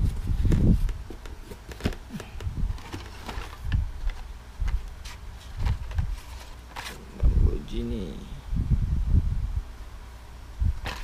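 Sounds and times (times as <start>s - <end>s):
plastic and card clicks and rustles: 0.0s - 7.0s, 10.8s - 11.0s.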